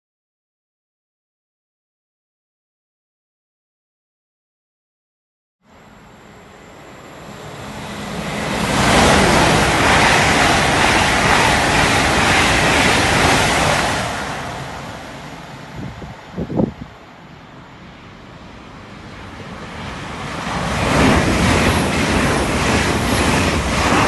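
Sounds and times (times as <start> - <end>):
train passing with wheel and air noise: 5.6 - 24.0.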